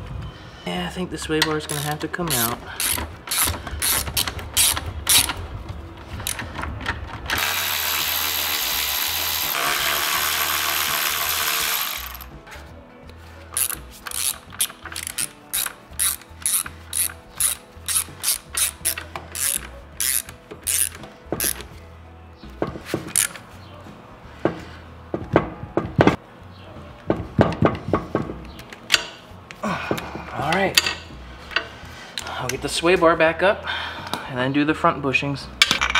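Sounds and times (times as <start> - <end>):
hand ratchet clicking: 1.4 - 5.4, 6.2 - 6.7, 7.3 - 12.3, 13.6 - 21.8, 23.1 - 23.4.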